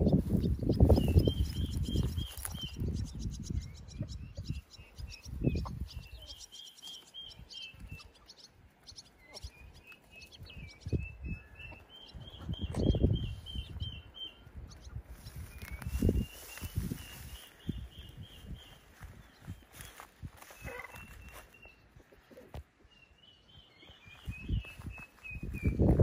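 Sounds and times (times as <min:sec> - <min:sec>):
wind gusting on microphone: 0:00.0 - 0:06.3, 0:10.4 - 0:21.4, 0:24.0 - 0:26.0
small bird chirping: 0:00.0 - 0:26.0.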